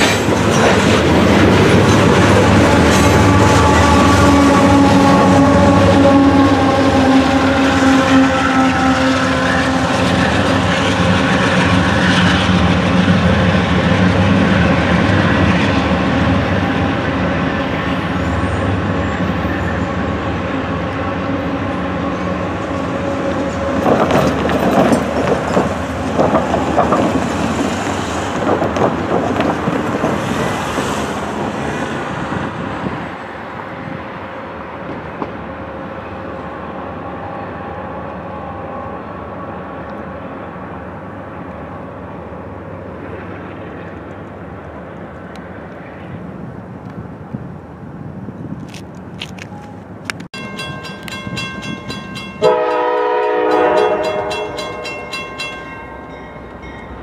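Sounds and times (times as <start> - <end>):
diesel locomotive engines droning: 0.0 - 57.0
train wheels knocking over rail joints: 23.8 - 30.9.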